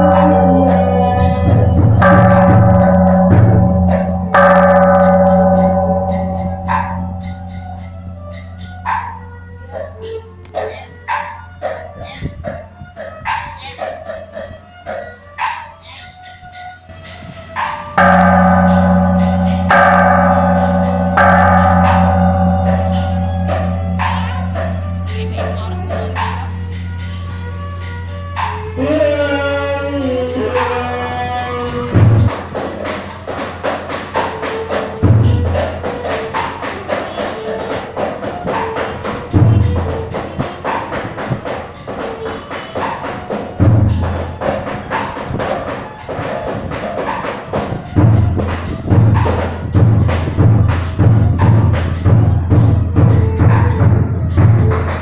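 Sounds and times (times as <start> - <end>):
deep drum booms: 0.0 - 8.4, 31.8 - 32.8
held tone: 0.0 - 9.4
large gong ringing: 0.0 - 12.0, 17.6 - 40.8, 41.7 - 44.9
low pulsing hum: 0.0 - 12.9, 18.0 - 29.4
wood block strikes: 0.0 - 29.8.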